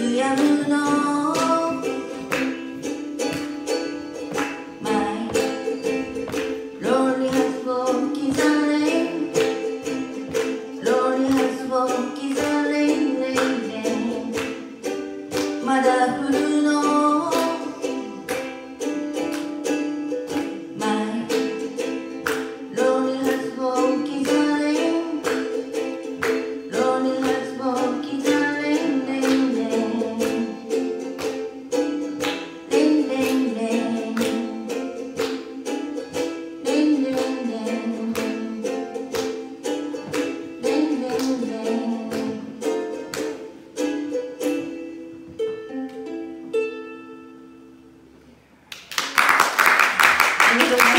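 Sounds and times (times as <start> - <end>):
woman singing: 0.0 - 2.5, 4.8 - 6.0, 6.8 - 14.6, 15.5 - 18.5, 20.6 - 25.6, 26.2 - 30.8, 32.6 - 34.9, 36.6 - 39.3, 40.1 - 42.8
ukulele strumming: 0.0 - 50.9.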